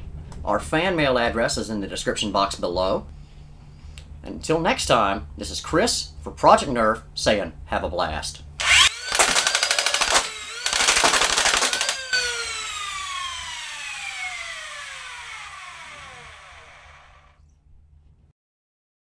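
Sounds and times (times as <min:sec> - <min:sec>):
flywheel motors whining: 0:08.6 - 0:17.4
toy blaster firing rapid rattle: 0:08.6 - 0:17.4.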